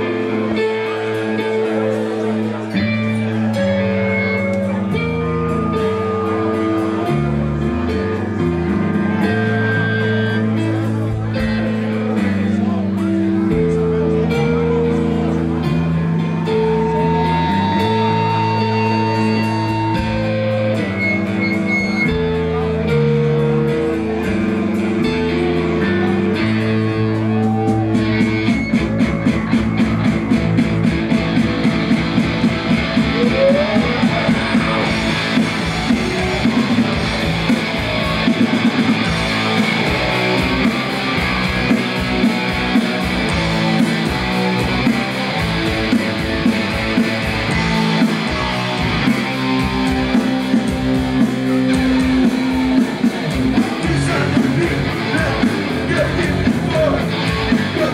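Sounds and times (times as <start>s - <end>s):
punk rock band playing: 0.0s - 57.9s.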